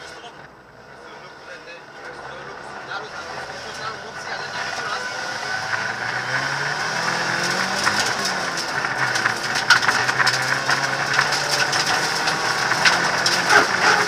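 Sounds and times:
rally car engine pulling under load: 0:00.0 - 0:14.0
gravel striking car underbody: 0:04.8 - 0:14.0.

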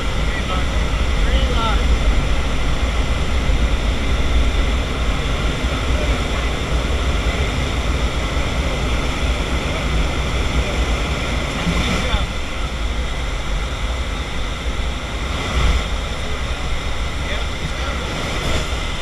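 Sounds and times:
airplane engine and propeller drone: 0:00.0 - 0:19.0.

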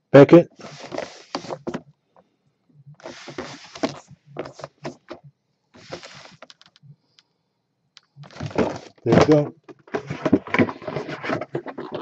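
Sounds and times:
plastic rubbing and scraping: 0:00.5 - 0:01.9, 0:03.0 - 0:05.2, 0:05.8 - 0:06.8, 0:08.2 - 0:12.0.

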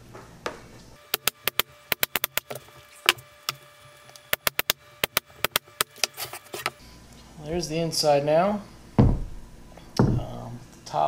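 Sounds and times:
pneumatic nailer firing: 0:01.1 - 0:03.2, 0:04.3 - 0:06.1.

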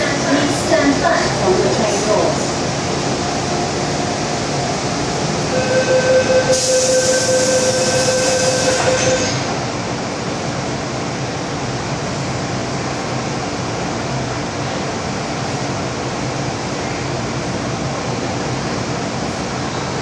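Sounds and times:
train running rumble: 0:00.0 - 0:20.0
train wheel squeal: 0:05.6 - 0:09.5.

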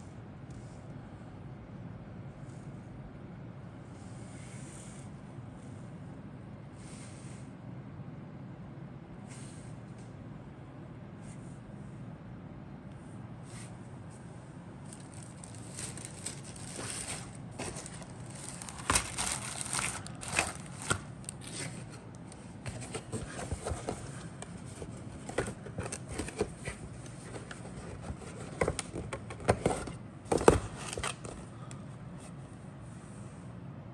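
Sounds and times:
paper rustling and crinkling: 0:14.8 - 0:31.7.

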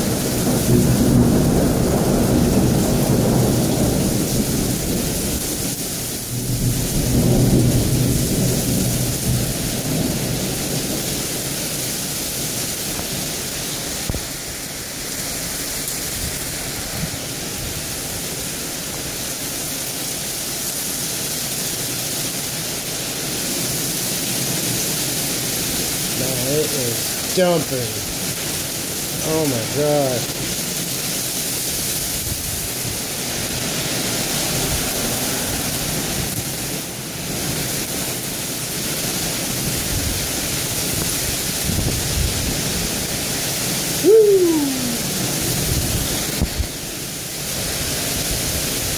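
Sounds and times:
thunder rumbling: 0:00.0 - 0:05.5
heavy rain on pavement: 0:00.0 - 0:48.9.

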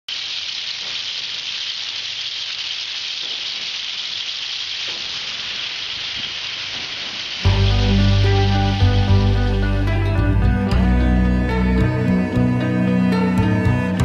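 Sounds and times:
steady bright hiss: 0:00.1 - 0:10.4.

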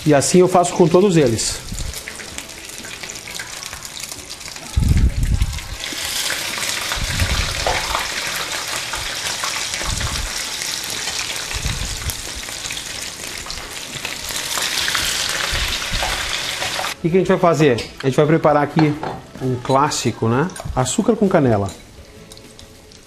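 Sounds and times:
bread frying in sizzling oil: 0:00.0 - 0:17.0, 0:20.8 - 0:23.0
dull low thumps: 0:07.0 - 0:07.6.

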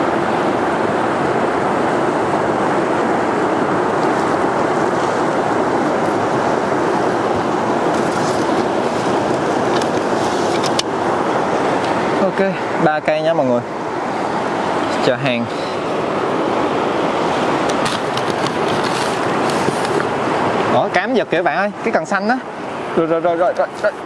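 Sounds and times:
river water rushing: 0:00.0 - 0:24.0.

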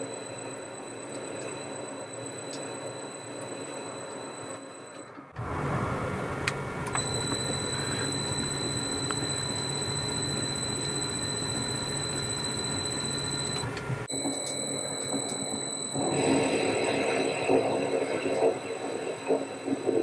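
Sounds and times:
high whine: 0:00.0 - 0:20.0
lathe motor whirring: 0:06.8 - 0:16.8
clock-like ticking: 0:06.9 - 0:13.6.

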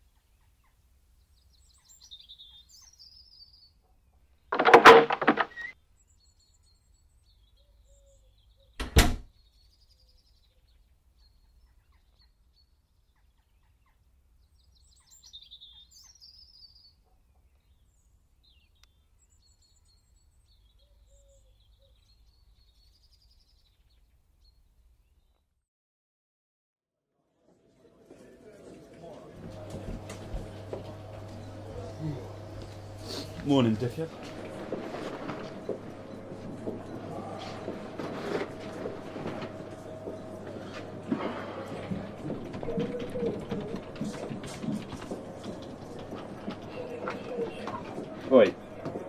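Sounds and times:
door shutting thud: 0:04.5 - 0:05.7, 0:08.8 - 0:09.3
door clattering: 0:04.5 - 0:05.8
birds chirping faintly: 0:29.4 - 0:49.0.

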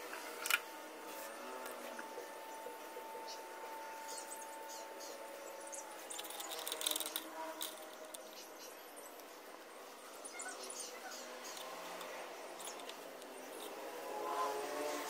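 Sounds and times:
metal parts clinking against glass jar: 0:06.1 - 0:08.4, 0:11.5 - 0:13.0.

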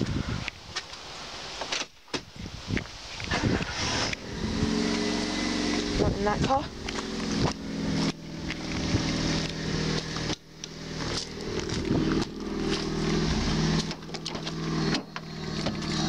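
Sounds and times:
car engine idling: 0:03.4 - 0:16.0.

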